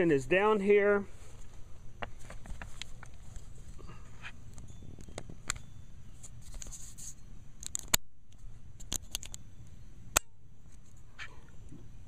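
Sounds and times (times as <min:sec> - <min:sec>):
steady low rumble: 0:00.0 - 0:06.4.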